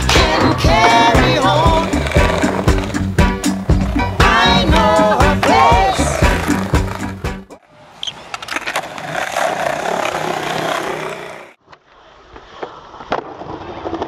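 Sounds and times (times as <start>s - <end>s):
skateboard wheels rolling on concrete: 0.0s - 14.0s
skateboard clack: 0.1s - 3.0s, 4.2s - 7.0s.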